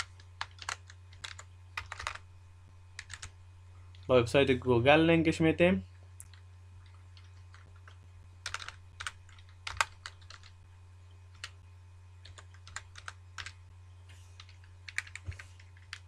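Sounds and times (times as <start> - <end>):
computer keyboard typing: 0.0 - 2.2, 3.0 - 3.4, 6.2 - 10.6, 11.3 - 11.6, 12.2 - 13.6, 14.4 - 16.0
steady low hum: 0.0 - 16.0.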